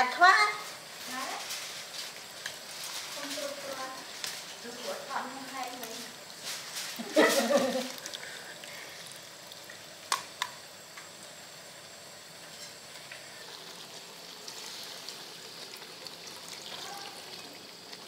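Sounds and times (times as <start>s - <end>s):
steady hiss: 0.0s - 17.6s
liquid trickling and splashing: 1.4s - 10.0s, 13.3s - 18.0s.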